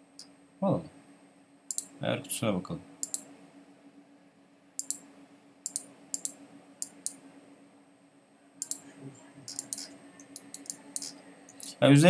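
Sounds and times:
faint low hum: 0:00.0 - 0:12.0
computer mouse clicking: 0:03.0 - 0:03.3, 0:04.8 - 0:05.0, 0:05.7 - 0:07.2, 0:08.6 - 0:08.8, 0:09.5 - 0:11.7.

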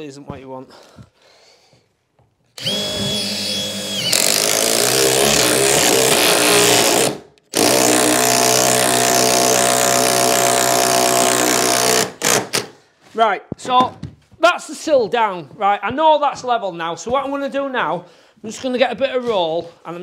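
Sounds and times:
impact driver driving screws: 0:02.6 - 0:12.8.

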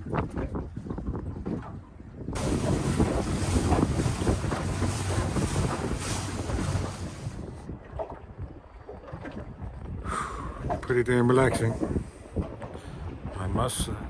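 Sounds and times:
water rushing past a hull: 0:00.0 - 0:14.0
wind buffeting the microphone: 0:00.0 - 0:14.0
steady low hum: 0:02.4 - 0:07.6.

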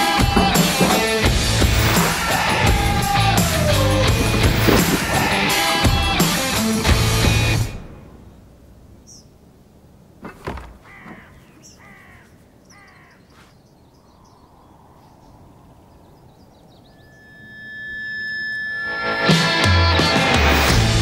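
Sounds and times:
bird calling: 0:00.0 - 0:20.2
sharp knocks: 0:00.2 - 0:07.8, 0:10.2 - 0:11.4.

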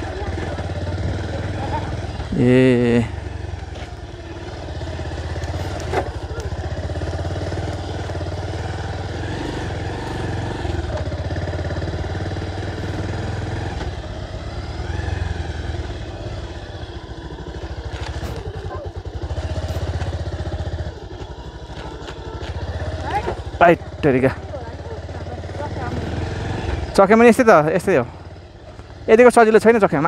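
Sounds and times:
motorcycle engine running: 0:00.0 - 0:30.0.

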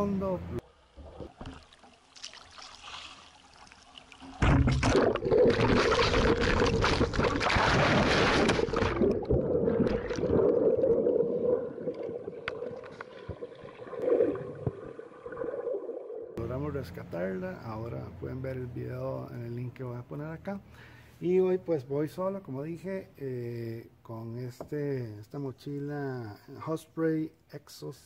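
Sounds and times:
underwater sound: 0:00.6 - 0:16.4
rushing bubbling water: 0:00.9 - 0:16.4
splash into water: 0:01.2 - 0:15.4.

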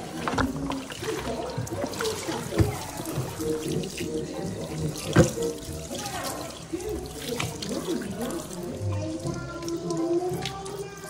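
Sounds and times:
tap water splashing in a sink: 0:00.0 - 0:11.0.

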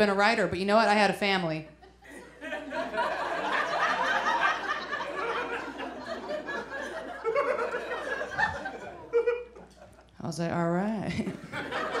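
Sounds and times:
audience laughing: 0:01.9 - 0:10.1, 0:11.1 - 0:12.0.

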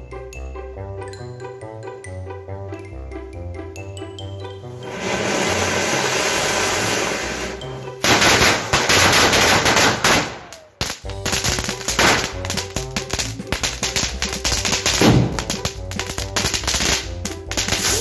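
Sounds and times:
firecrackers banging: 0:04.8 - 0:18.0
fountain firework hissing: 0:04.8 - 0:18.0.

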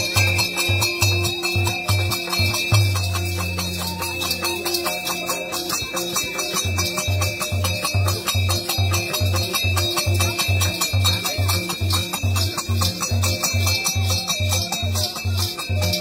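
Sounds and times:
held pipe melody: 0:00.0 - 0:16.0
jingling clashing cymbals: 0:00.0 - 0:16.0.

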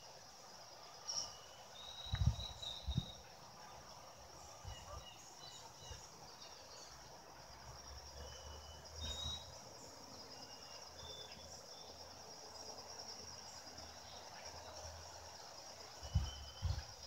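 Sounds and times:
insects trilling: 0:00.0 - 0:17.0
bird chirps and whistles: 0:09.0 - 0:09.5.

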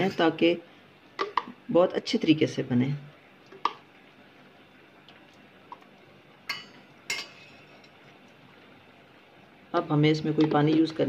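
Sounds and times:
metal spoon clinking on bowl: 0:06.5 - 0:07.5.

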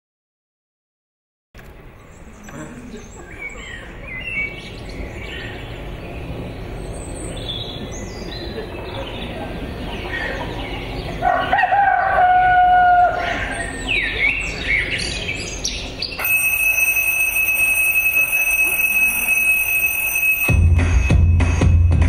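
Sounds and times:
bird chirps: 0:01.6 - 0:11.2, 0:13.0 - 0:16.6
rooster crowing: 0:11.2 - 0:13.5
phone alarm tone: 0:16.2 - 0:21.8.

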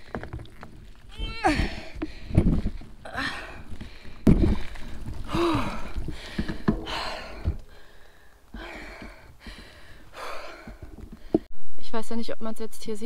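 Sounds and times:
woman gasping breaths: 0:01.4 - 0:11.5.

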